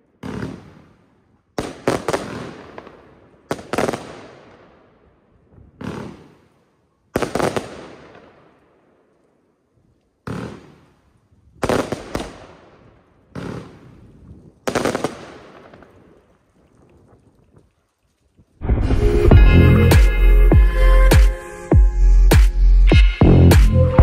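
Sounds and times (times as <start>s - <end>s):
firework launch bangs: 5.8s - 6.5s.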